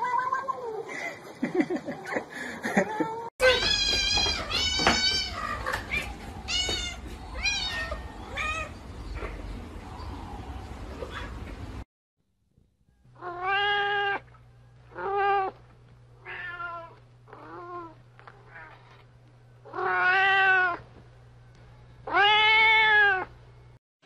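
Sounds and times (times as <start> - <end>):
cat meowing: 13.2 - 14.2, 16.2 - 18.9, 19.7 - 20.8, 22.1 - 23.3.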